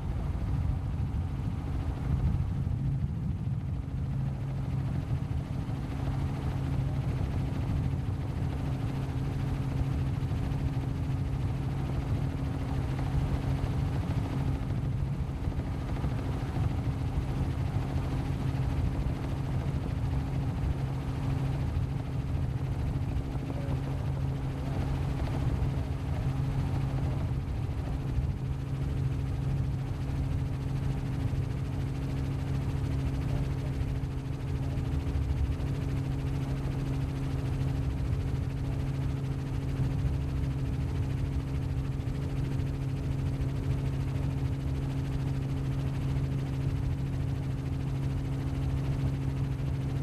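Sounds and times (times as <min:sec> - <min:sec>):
helicopter drone: 0:00.0 - 0:50.0.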